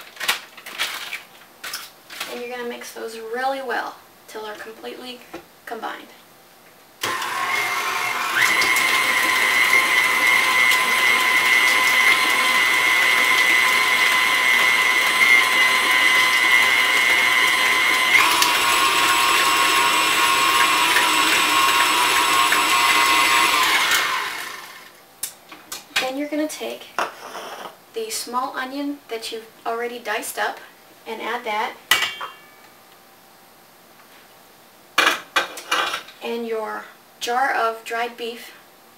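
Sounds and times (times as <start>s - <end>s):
stand mixer motor whine: 7.0s - 24.9s.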